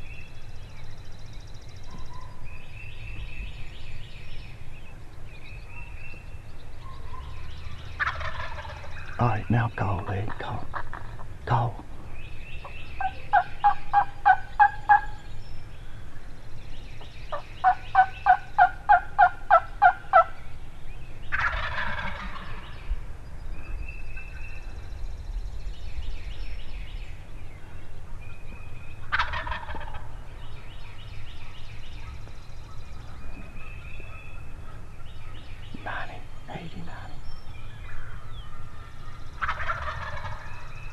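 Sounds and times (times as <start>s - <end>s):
turkey gobbling: 8.0s - 9.4s, 10.3s - 11.3s, 12.6s - 15.2s, 17.3s - 20.3s, 21.3s - 22.7s, 29.0s - 30.1s, 38.5s - 40.7s
turkey call yelping: 13.0s - 15.2s, 29.1s - 30.1s, 38.1s - 40.5s.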